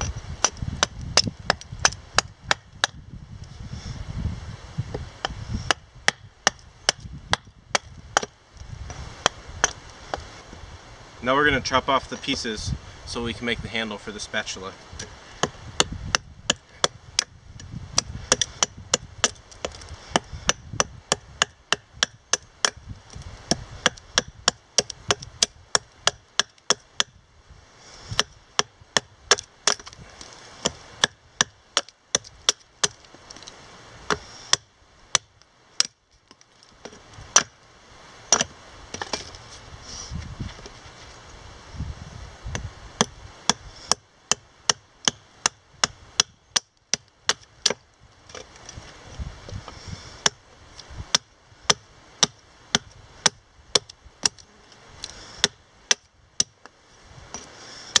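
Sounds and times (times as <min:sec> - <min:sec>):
hatchet chopping wood: 0:00.4 - 0:03.0, 0:04.9 - 0:08.4, 0:09.2 - 0:10.3, 0:15.0 - 0:27.2, 0:28.0 - 0:33.5, 0:34.1 - 0:37.6, 0:38.3 - 0:39.3, 0:42.5 - 0:48.5, 0:49.7 - 0:50.4, 0:51.1 - 0:54.4, 0:55.0 - 0:58.0.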